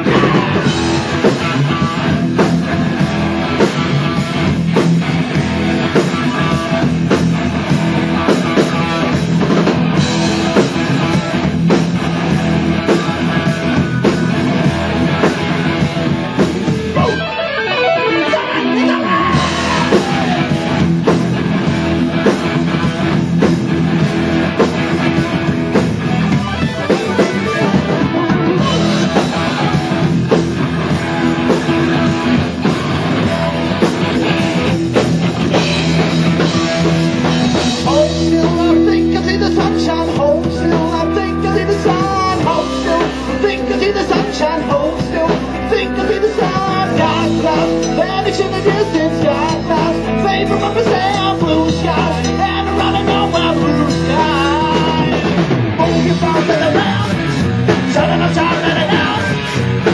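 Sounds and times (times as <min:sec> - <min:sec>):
drum kit with cymbals: 0:00.0 - 0:17.4, 0:19.2 - 0:59.9
bass guitar: 0:00.0 - 0:59.9
electric guitar: 0:00.0 - 0:59.9.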